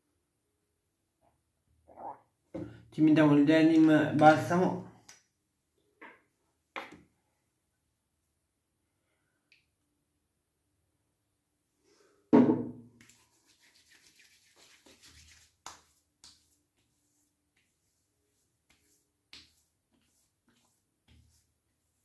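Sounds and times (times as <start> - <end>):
hands rubbing: 13.0 - 21.5.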